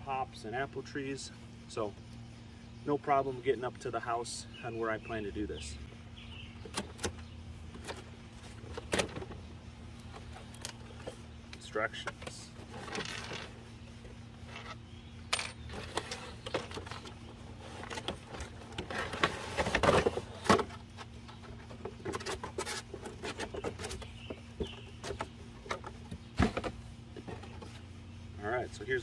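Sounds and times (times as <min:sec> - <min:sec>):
cardboard box being unpacked: 0:17.7 - 0:20.8.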